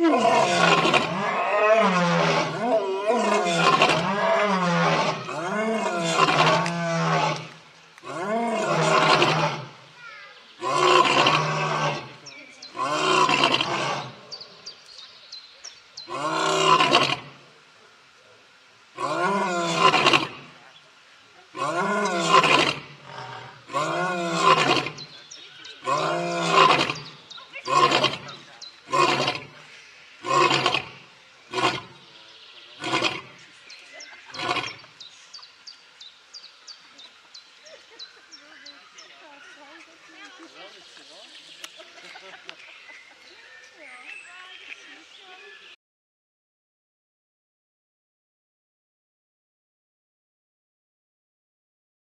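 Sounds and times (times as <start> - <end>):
lion roaring: 0.0 - 9.8, 10.6 - 14.3, 16.1 - 17.4, 19.0 - 20.4, 21.6 - 25.1, 25.8 - 29.6, 30.2 - 32.0, 32.8 - 33.4, 34.3 - 34.9.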